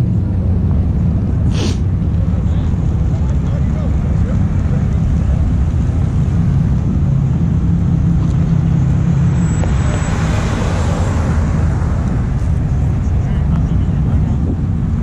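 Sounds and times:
car engines rumbling: 0:00.0 - 0:15.0
rushing noise: 0:04.5 - 0:15.0.

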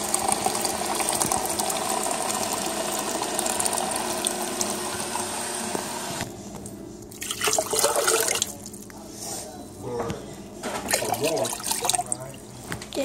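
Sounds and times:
water pouring into plastic pitcher: 0:00.0 - 0:05.3, 0:07.1 - 0:08.8, 0:10.9 - 0:12.3.

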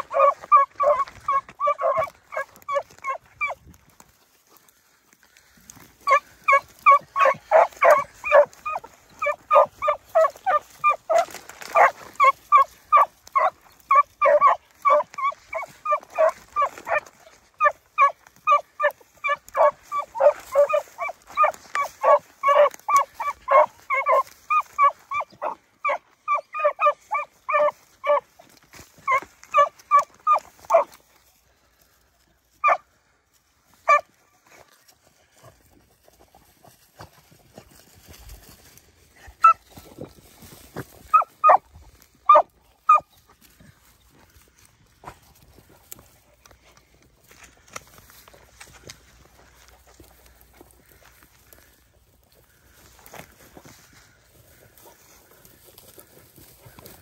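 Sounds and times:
hounds barking: 0:00.0 - 0:03.6, 0:05.7 - 0:31.0, 0:32.6 - 0:32.9, 0:33.7 - 0:34.2, 0:39.2 - 0:39.8, 0:40.9 - 0:43.1.

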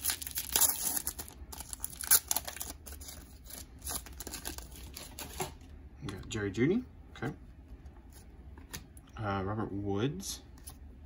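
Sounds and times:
foil wrapper crinkling: 0:00.0 - 0:05.4.

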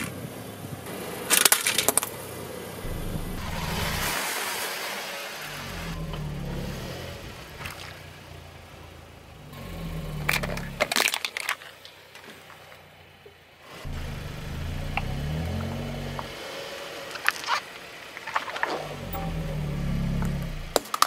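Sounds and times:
car engine running low: 0:02.4 - 0:04.2, 0:05.4 - 0:11.2, 0:12.4 - 0:20.9.

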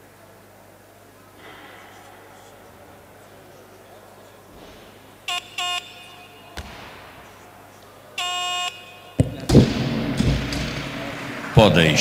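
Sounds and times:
crowd noise: 0:00.0 - 0:12.0
electronic beeps: 0:05.3 - 0:07.5, 0:08.2 - 0:09.8.

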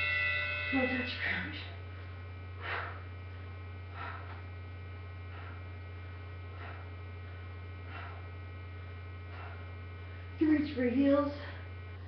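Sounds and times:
electrical mains hum: 0:00.0 - 0:12.0
breathy exhalations: 0:03.8 - 0:04.5, 0:05.2 - 0:10.3.

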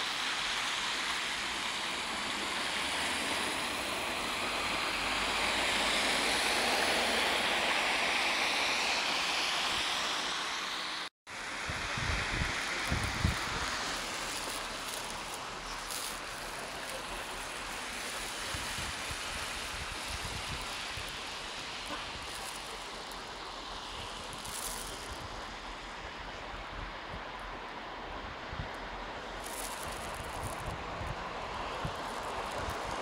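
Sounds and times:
traffic: 0:00.0 - 0:33.0
wind: 0:00.0 - 0:33.0
wind buffeting microphone: 0:11.7 - 0:13.8, 0:29.8 - 0:33.0.

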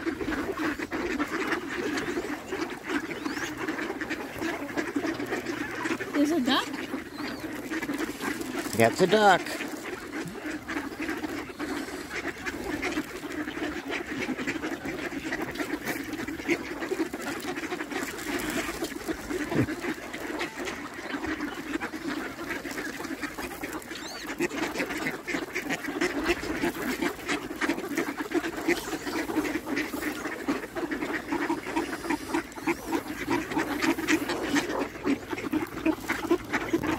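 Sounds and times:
ducks quacking: 0:00.0 - 0:36.9.

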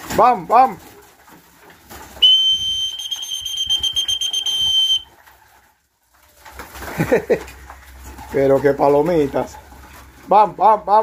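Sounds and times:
high whistle note: 0:02.2 - 0:05.1.

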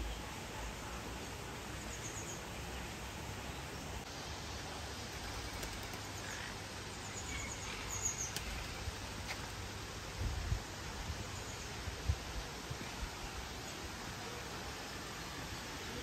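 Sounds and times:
steady outdoor hiss: 0:00.0 - 0:16.0
small birds chirping: 0:05.2 - 0:09.6.

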